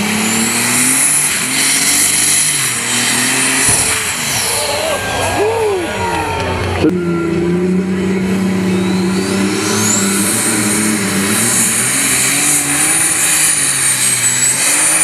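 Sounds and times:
tractor engine under load: 6.4 - 15.0.

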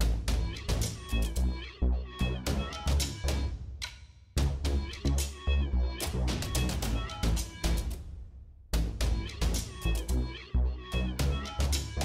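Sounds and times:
music with heavy bass beat: 4.4 - 7.9, 8.8 - 10.3.

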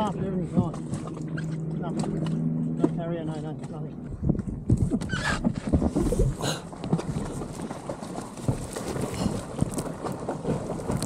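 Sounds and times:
wind buffeting microphone: 3.9 - 11.0.

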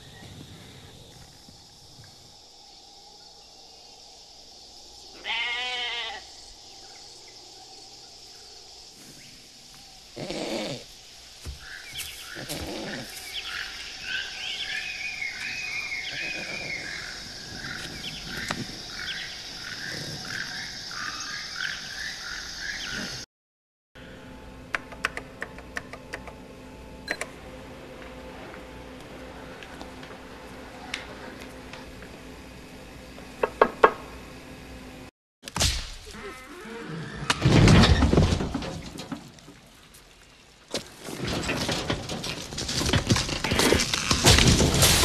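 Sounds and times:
high insect buzz: 0.0 - 23.2
animal calls: 15.7 - 17.9
low steady hum: 24.0 - 35.1.

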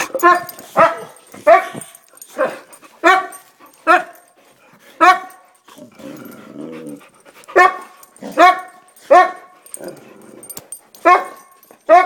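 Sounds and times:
dog barking: 0.0 - 4.2, 5.0 - 5.4, 7.5 - 9.6, 11.0 - 12.0
dog growling: 5.8 - 7.2, 9.7 - 10.6.

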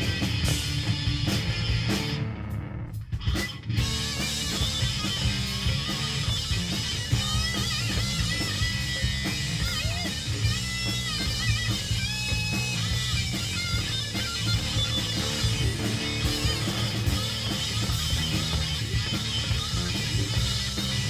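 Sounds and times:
bending electric guitar notes: 0.0 - 21.0
rock band playing: 0.0 - 21.0.

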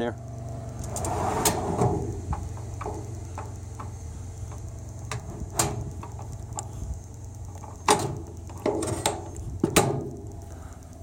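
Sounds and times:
steady low rumble: 0.0 - 11.0
knocks and clunks: 1.0 - 6.7, 7.5 - 10.3.

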